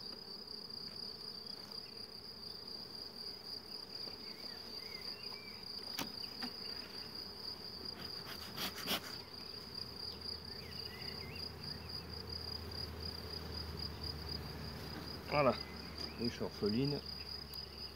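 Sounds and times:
high-pitched insect trill: 0.0 - 17.9
honeybees humming: 0.0 - 17.9
bee smoker clicks and knocks: 5.3 - 6.8, 14.4 - 17.7.

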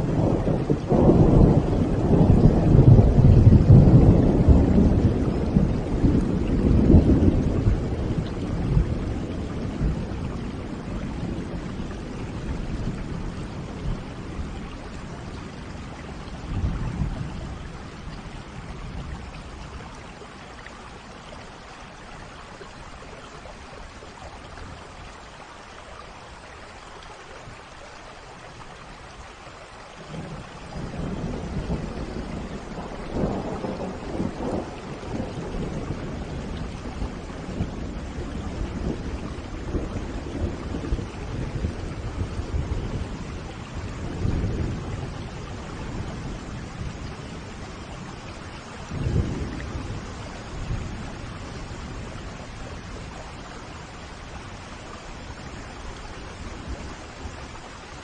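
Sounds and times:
thunder rumbling: 0.0 - 20.3, 30.0 - 58.0
rain falling: 0.0 - 58.0.

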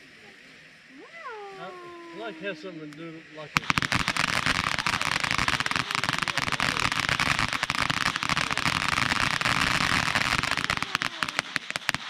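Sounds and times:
firework hissing and crackling: 3.5 - 12.0.

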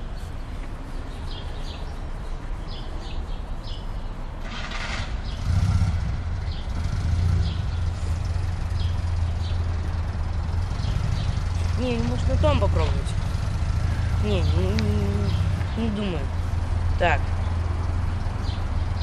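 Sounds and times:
small birds chirping: 0.0 - 19.0
vehicle engine running: 4.4 - 19.0.

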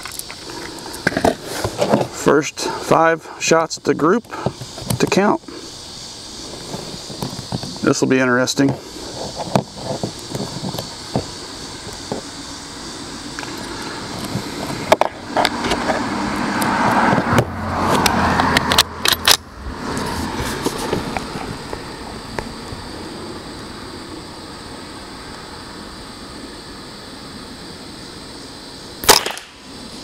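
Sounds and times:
vehicle passing: 12.4 - 24.2.

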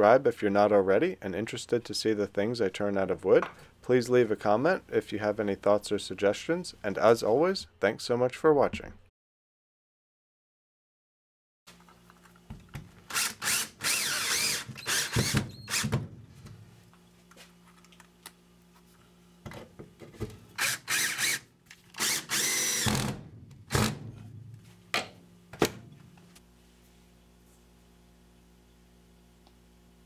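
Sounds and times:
cordless drill whining: 13.1 - 16.0, 20.6 - 23.1.

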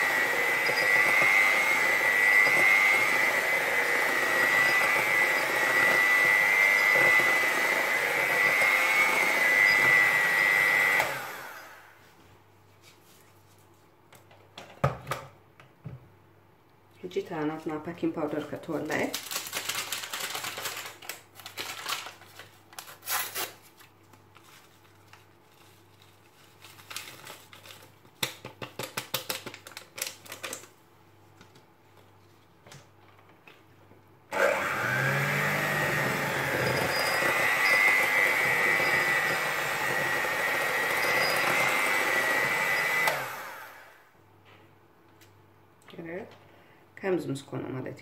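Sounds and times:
electric hand mixer whining: 0.0 - 11.9, 34.3 - 44.1.

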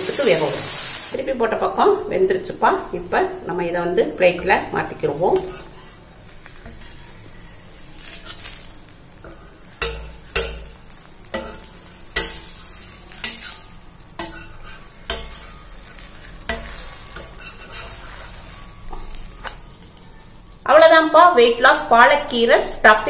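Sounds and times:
light sizzle: 0.0 - 23.0
spatula scraping metal pan: 4.3 - 19.9.

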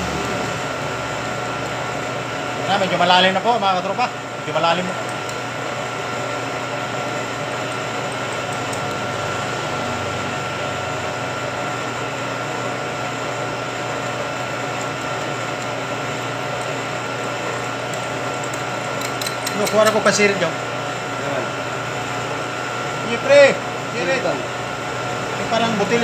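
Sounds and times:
milling machine cutting metal: 0.0 - 3.5.

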